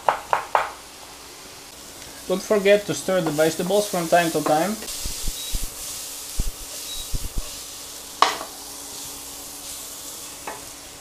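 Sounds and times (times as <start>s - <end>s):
vegetables sizzling in oil: 3.3s - 11.0s
sharp tap: 4.9s - 5.8s, 6.4s - 7.5s.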